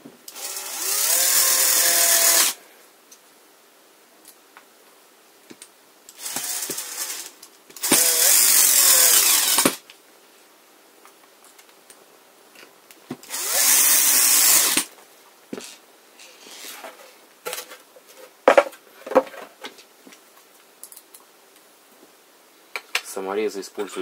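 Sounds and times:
electric drill running: 0:00.3 - 0:02.6, 0:06.2 - 0:09.8, 0:13.3 - 0:14.9.

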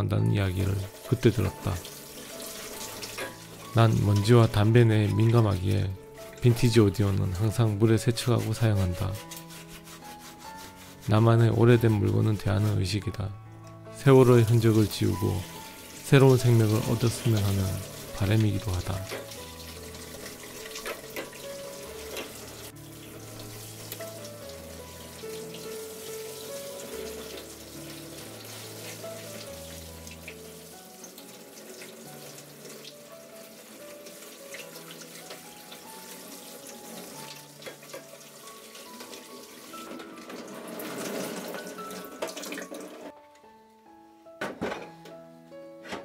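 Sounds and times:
slow music with held notes: 0:00.0 - 0:46.0
water splashing over metal: 0:00.6 - 0:05.8, 0:14.5 - 0:43.1.

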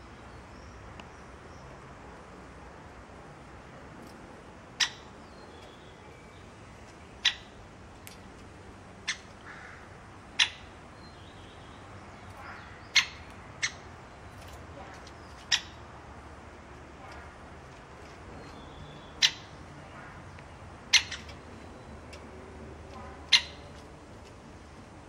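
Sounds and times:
woodpecker sharp ticks: 0:20.3 - 0:24.4.

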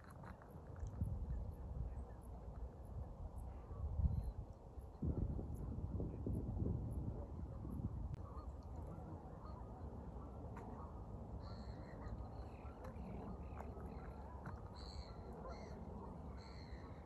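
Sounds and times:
low steady background rumble: 0:00.0 - 0:17.0
geese honking in distance: 0:08.2 - 0:17.0.

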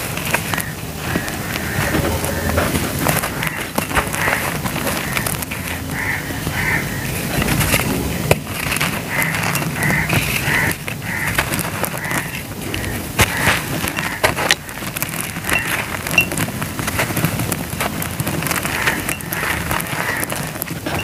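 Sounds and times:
dry cement mix crumbling: 0:00.0 - 0:21.0
grains pattering down: 0:00.0 - 0:21.0
crow cawing: 0:00.4 - 0:07.4, 0:08.9 - 0:15.8, 0:18.7 - 0:20.7.

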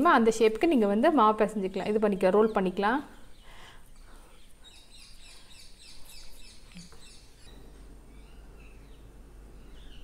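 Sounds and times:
bird chirping: 0:02.2 - 0:10.0
steady low hum: 0:03.1 - 0:10.0.

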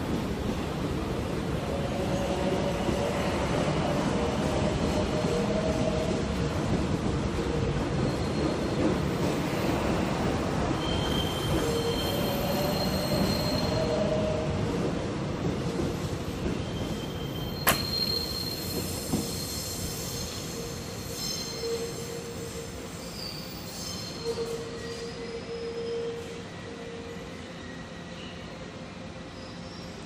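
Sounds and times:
electric train rumbling past: 0:00.0 - 0:23.6
train wheels squealing: 0:07.9 - 0:14.4, 0:16.5 - 0:30.0.

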